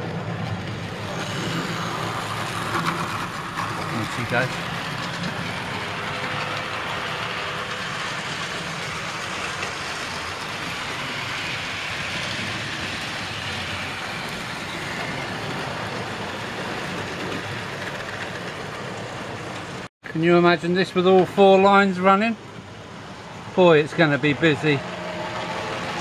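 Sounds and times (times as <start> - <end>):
model train motors whirring: 0.0 - 19.9
wheels rolling over track: 0.0 - 19.9.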